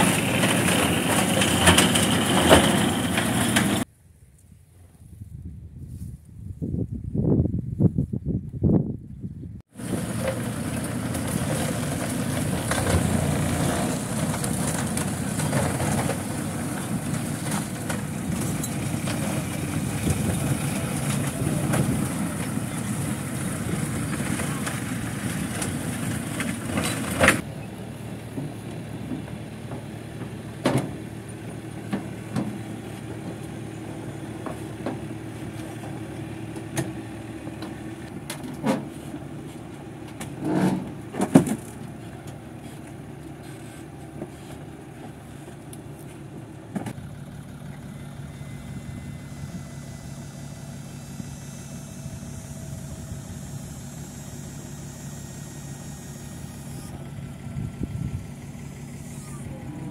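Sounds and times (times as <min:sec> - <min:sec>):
metal tracks clanking on ramps: 0:00.0 - 0:03.8, 0:09.8 - 0:27.5, 0:40.2 - 0:41.6
crawler tractor engine running: 0:00.0 - 0:03.9, 0:09.7 - 0:59.9.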